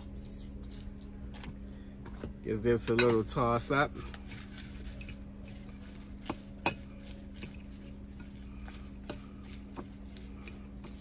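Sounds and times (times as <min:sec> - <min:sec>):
salad leaves rustling: 0:03.4 - 0:11.0.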